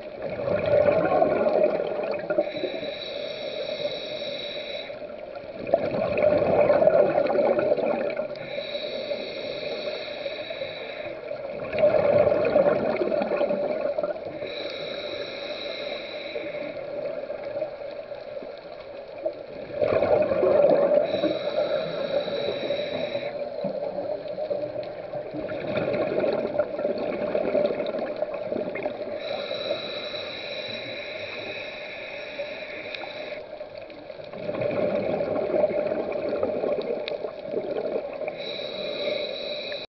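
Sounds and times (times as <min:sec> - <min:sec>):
diver exhaling bubbles: 0:00.2 - 0:02.7, 0:05.6 - 0:08.3, 0:11.5 - 0:14.2, 0:19.6 - 0:23.3, 0:25.3 - 0:30.1, 0:34.3 - 0:39.6
regulator hiss: 0:01.6 - 0:05.7, 0:08.2 - 0:11.6, 0:13.3 - 0:19.2, 0:20.8 - 0:25.2, 0:28.0 - 0:34.2, 0:37.6 - 0:39.9.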